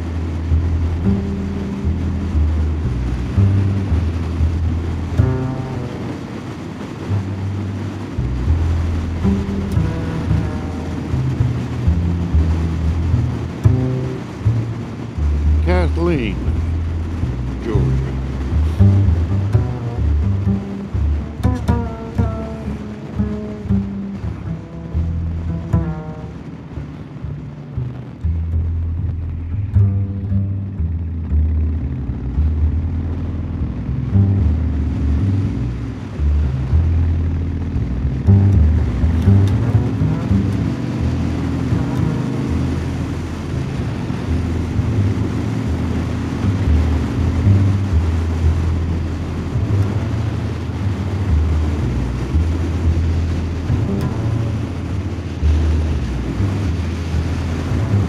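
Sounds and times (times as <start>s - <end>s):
deep bass line: 0.0s - 58.0s
motorcycle engine cruising: 0.0s - 58.0s
wind rushing: 0.0s - 58.0s
plucked note ringing: 0.5s - 15.6s, 18.2s - 32.0s, 33.3s - 58.0s.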